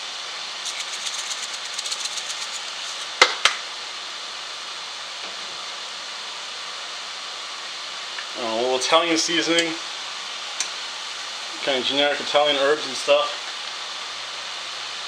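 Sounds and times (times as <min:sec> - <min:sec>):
vegetables frying in a pan: 0:00.0 - 0:15.0
chili flakes shaken from jar: 0:00.6 - 0:03.4.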